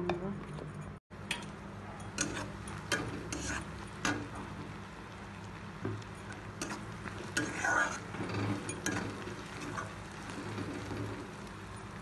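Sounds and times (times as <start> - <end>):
spatula scraping metal pan: 2.2 - 4.3, 6.6 - 11.3.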